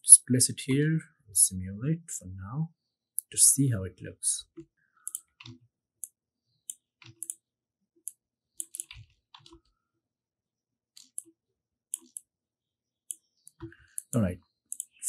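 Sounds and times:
computer mouse clicks: 0:05.0 - 0:07.4, 0:08.0 - 0:09.7, 0:11.0 - 0:11.3, 0:11.9 - 0:12.3, 0:13.1 - 0:15.0.

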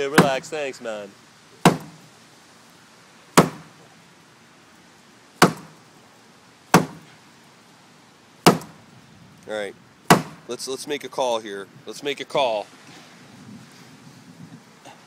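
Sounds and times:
shoe thudding against wood: 0:01.6 - 0:02.0, 0:03.4 - 0:03.7, 0:05.4 - 0:05.8, 0:06.7 - 0:07.1, 0:08.5 - 0:08.8, 0:10.1 - 0:10.4.

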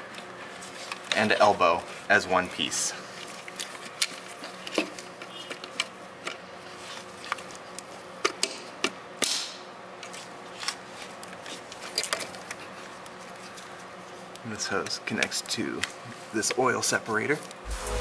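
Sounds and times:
brief rubbing sounds: 0:17.7 - 0:18.0.

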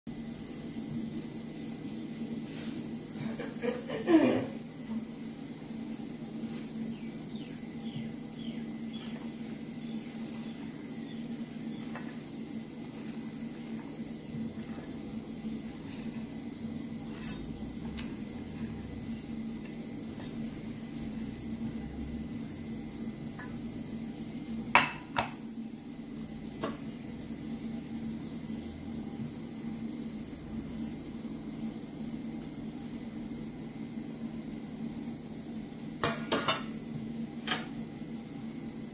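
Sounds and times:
steady low hum: 0:00.1 - 0:38.9
bird chirping: 0:06.9 - 0:11.9
kitchenware clinking: 0:17.0 - 0:18.7.

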